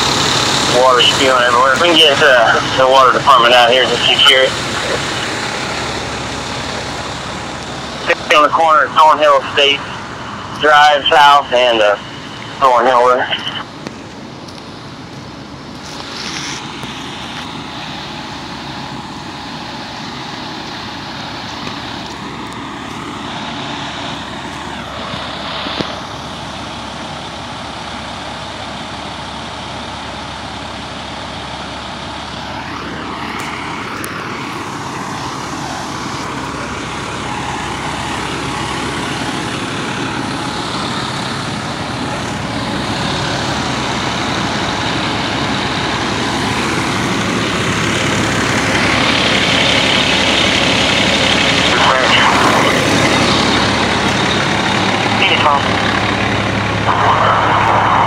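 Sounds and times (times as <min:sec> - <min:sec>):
diesel engines idling: 0:00.0 - 0:58.0.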